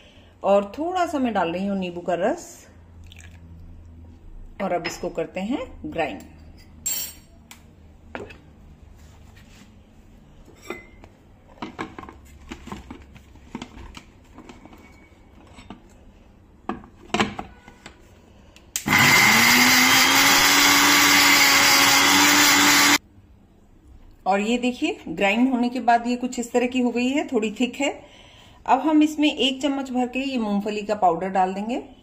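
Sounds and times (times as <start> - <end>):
mixer grinder motor running: 18.8 - 23.0.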